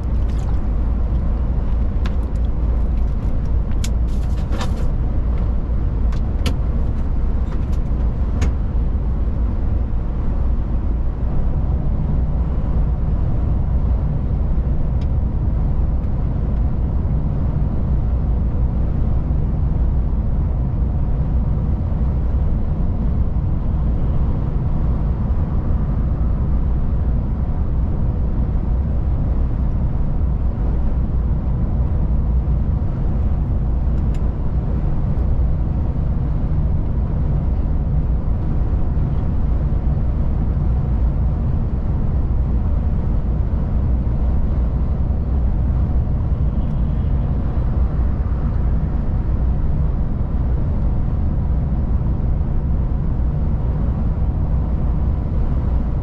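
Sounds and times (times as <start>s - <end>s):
tyre and road noise: 0.0s - 13.0s
truck engine drone: 0.0s - 56.0s.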